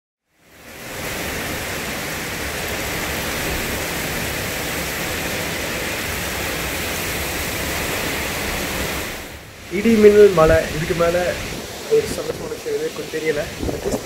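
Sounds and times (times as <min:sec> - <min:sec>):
heavy rain pouring: 0:00.3 - 0:14.0.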